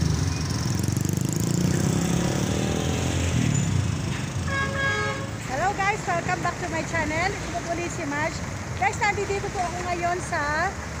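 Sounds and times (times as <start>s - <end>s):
motorcycle engine running: 0.0s - 4.5s
motorcycle horn: 4.4s - 5.4s.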